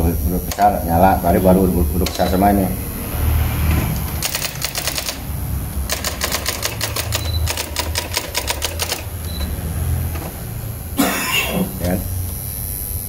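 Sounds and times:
electronic typewriter typing: 0:02.0 - 0:02.6, 0:04.0 - 0:09.5.

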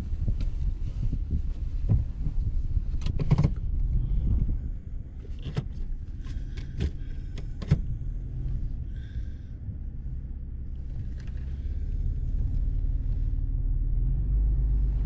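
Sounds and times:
vehicle engine idling: 0:00.0 - 0:15.0
sharp clicks and knocks: 0:01.9 - 0:03.8, 0:05.3 - 0:07.9.

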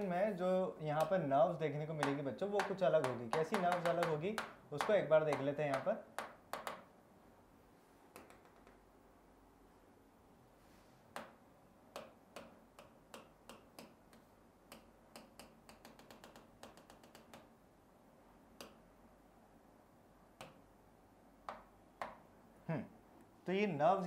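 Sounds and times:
pen tapping on a display board: 0:02.0 - 0:06.9, 0:08.1 - 0:08.8, 0:11.1 - 0:17.5, 0:21.4 - 0:22.2.

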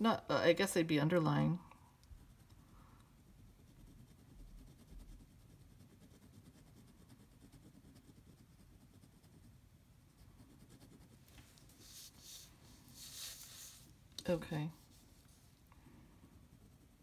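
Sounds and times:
low room rumble: 0:01.1 - 0:17.0
pen scratching on paper: 0:02.2 - 0:13.9, 0:16.3 - 0:17.0.

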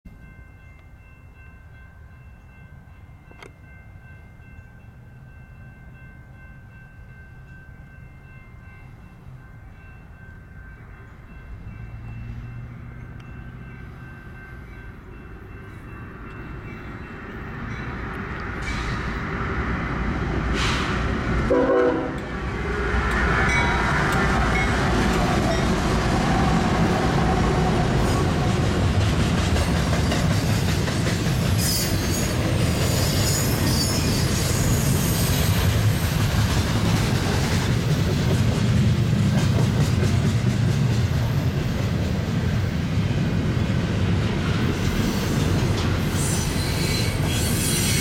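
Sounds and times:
freight train engine and wheel rumble: 0:00.1 - 0:48.0
train horn: 0:21.4 - 0:22.4.

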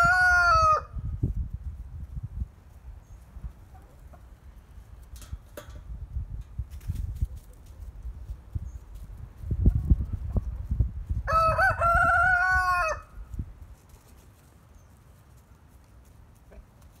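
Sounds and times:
rooster crowing: 0:00.0 - 0:01.0, 0:11.2 - 0:13.2.

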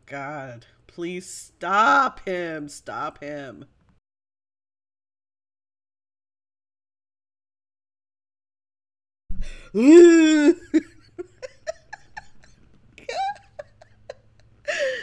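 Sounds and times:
woman laughing: 0:09.4 - 0:15.0.

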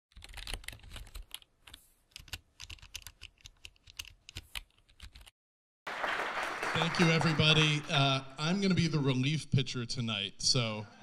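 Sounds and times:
keyboard typing: 0:00.1 - 0:05.3.

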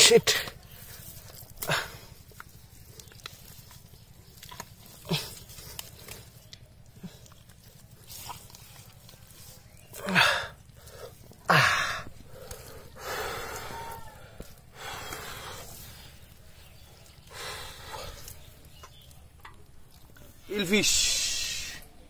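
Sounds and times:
hands digging through wet mud: 0:00.0 - 0:20.7
person gasping: 0:11.5 - 0:14.0.

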